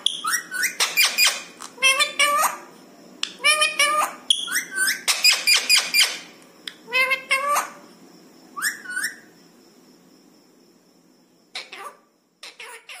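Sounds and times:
parakeet whistled calls: 0.0 - 2.6, 3.4 - 6.3, 8.6 - 9.3.

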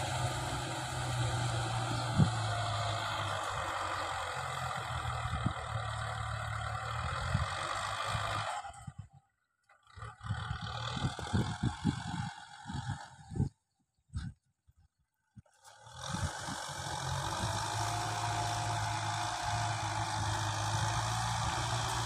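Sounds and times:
tiller churning wet soil: 0.0 - 8.8, 15.5 - 22.0
tractor diesel engine running: 0.0 - 13.5, 15.6 - 22.0.

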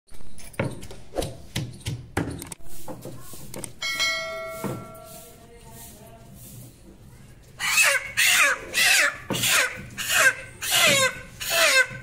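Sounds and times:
notification bell ding: 3.8 - 5.2.

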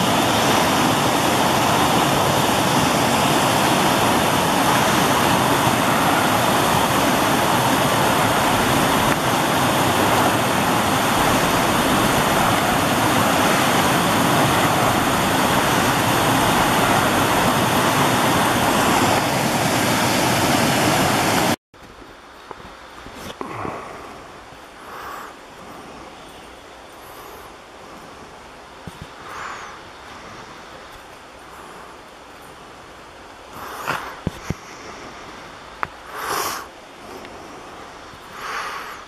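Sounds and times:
water rushing over rock ledge: 0.0 - 21.6
quiet outdoor background: 21.8 - 39.0.

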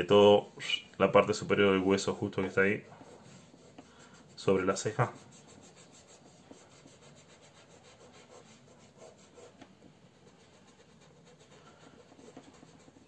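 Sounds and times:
fingertips rubbing on paper: 0.0 - 13.0.

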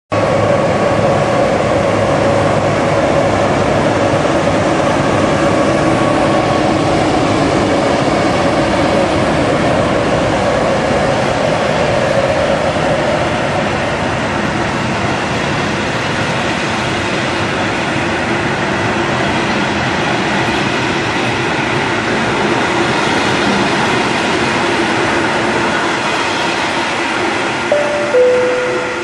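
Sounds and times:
train wheels on rail: 0.2 - 29.0
locomotive whine: 27.7 - 29.0.

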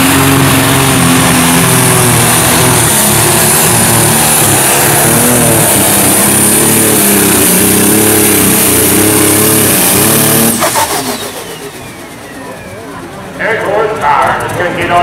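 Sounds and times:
diesel engine at full throttle: 0.0 - 15.0
steady high whistle: 11.0 - 12.9.

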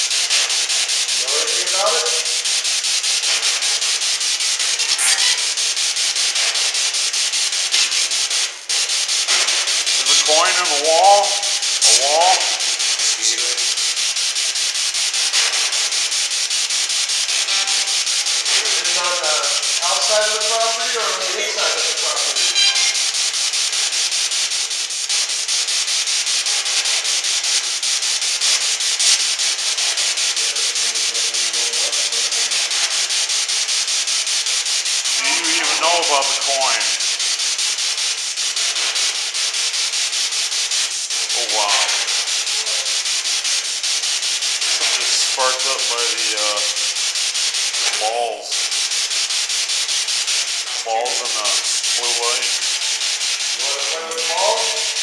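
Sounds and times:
chopped radio static hiss: 0.0 - 55.0
fragments of broadcast voices: 1.2 - 2.5, 4.6 - 5.6, 9.3 - 13.9, 17.3 - 23.0, 29.9 - 33.0, 35.1 - 37.0, 41.2 - 43.1, 44.6 - 47.0, 47.7 - 48.7, 50.6 - 52.7, 53.4 - 55.0.

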